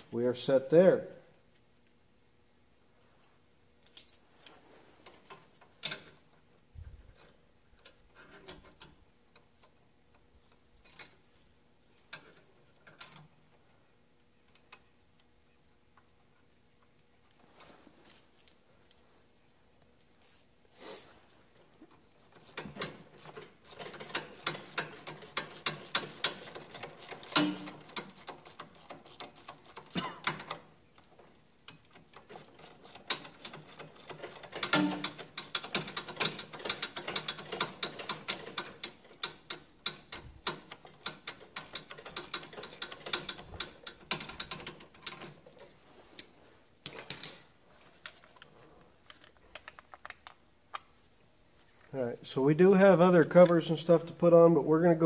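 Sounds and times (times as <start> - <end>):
ratchet wrench clicking: 22.4 - 30.5, 31.7 - 45.2.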